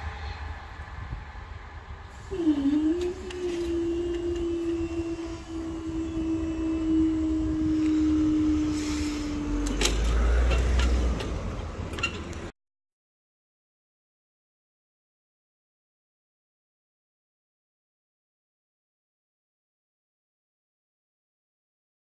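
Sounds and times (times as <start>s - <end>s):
low rumble: 0.0s - 12.5s
barrier motor humming: 1.6s - 12.5s.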